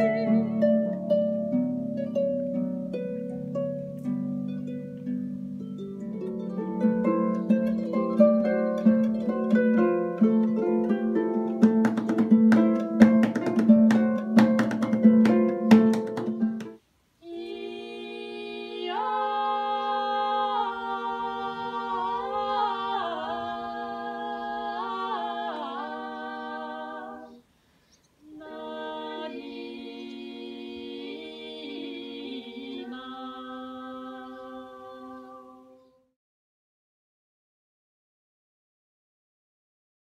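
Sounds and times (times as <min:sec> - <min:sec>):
women singing in harmony: 0:17.2 - 0:27.5, 0:28.3 - 0:36.0.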